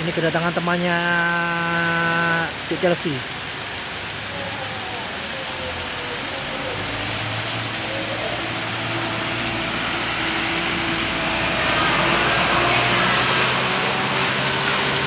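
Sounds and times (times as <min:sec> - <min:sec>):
rain hissing: 0:00.0 - 0:15.0
diesel truck passing by: 0:03.8 - 0:15.0.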